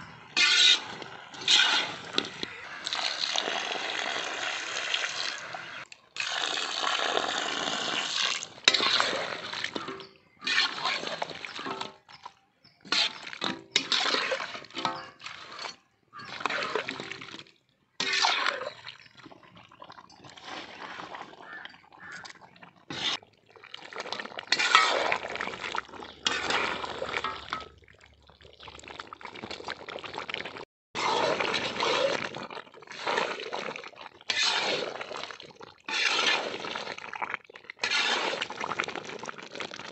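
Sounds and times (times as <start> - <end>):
spatula stirring: 0.0 - 3.3, 8.0 - 17.4, 18.0 - 27.7, 31.0 - 37.2, 37.8 - 38.8
sauce bubbling in a wok: 0.0 - 39.9.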